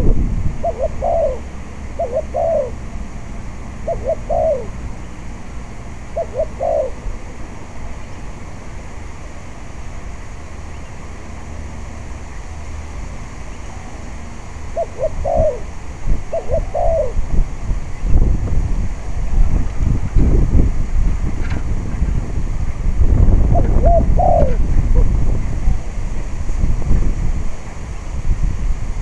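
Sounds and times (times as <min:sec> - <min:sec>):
dove cooing: 0:00.0 - 0:07.9, 0:13.4 - 0:18.1, 0:23.2 - 0:25.9
wind rumble on microphone: 0:00.0 - 0:29.0.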